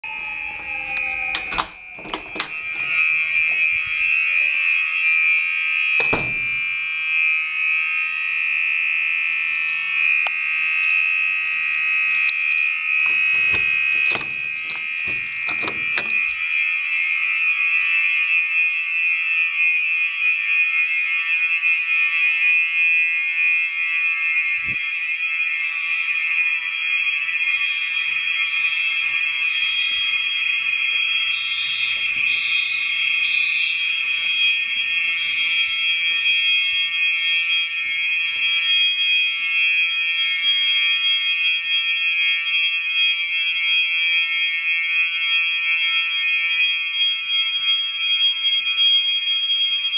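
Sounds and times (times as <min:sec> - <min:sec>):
fire alarm buzzing tone: 0:00.0 - 0:49.9
door knob clicking: 0:01.0 - 0:02.9, 0:06.0 - 0:06.6, 0:13.0 - 0:16.4.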